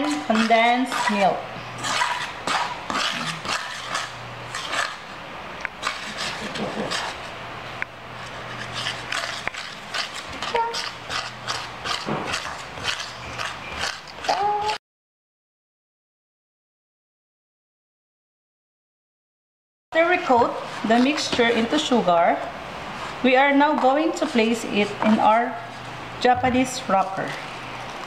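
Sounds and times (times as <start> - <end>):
metal spoon scraping metal bowl: 0.0 - 5.0, 5.8 - 7.4, 8.2 - 14.8, 20.0 - 22.1, 23.0 - 25.9.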